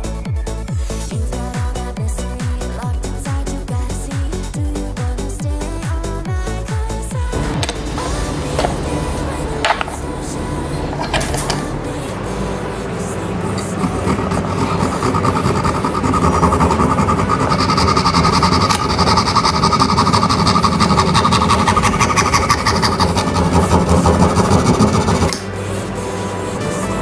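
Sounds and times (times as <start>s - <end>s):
wire saw scraping plastic: 13.6s - 25.4s.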